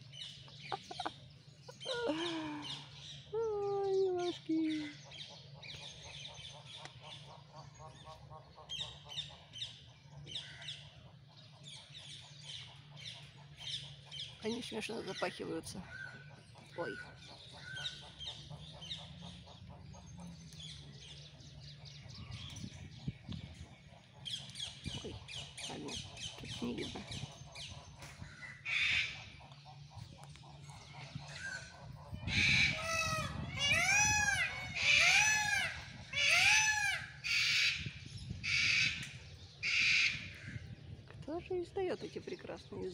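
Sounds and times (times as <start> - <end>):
harsh screeching animal calls: 32.3 - 37.8.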